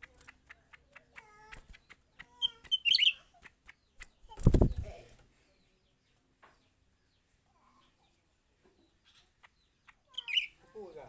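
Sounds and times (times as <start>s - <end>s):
bird wings flapping: 0.0s - 5.2s
bird chirping: 0.0s - 11.0s.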